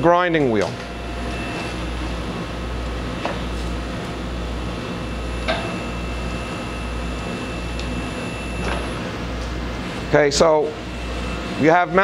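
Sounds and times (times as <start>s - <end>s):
grinder machine humming: 0.0s - 12.0s.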